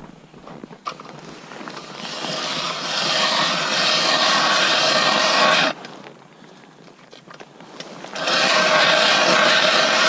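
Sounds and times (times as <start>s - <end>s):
ice auger grinding through ice: 0.9s - 5.8s, 8.1s - 10.0s.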